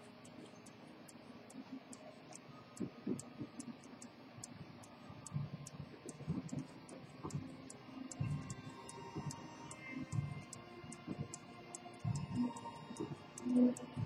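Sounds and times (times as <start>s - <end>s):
pocket watch ticking: 6.1s - 14.0s.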